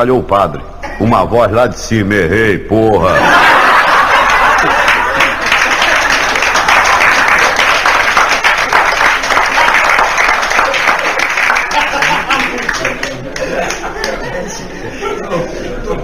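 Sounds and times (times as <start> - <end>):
audience applauding: 3.5 - 14.3.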